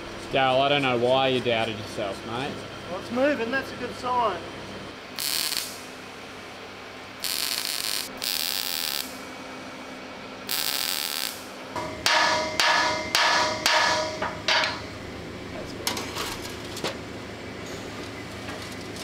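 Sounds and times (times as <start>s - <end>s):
welder hissing: 5.2s - 5.9s, 7.2s - 9.2s, 10.5s - 12.7s
hammer striking sheet steel: 11.8s - 14.9s.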